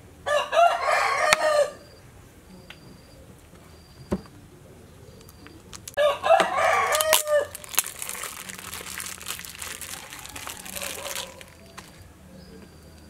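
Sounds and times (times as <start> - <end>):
rooster crowing: 0.2 - 2.0, 6.0 - 7.7, 9.8 - 12.0.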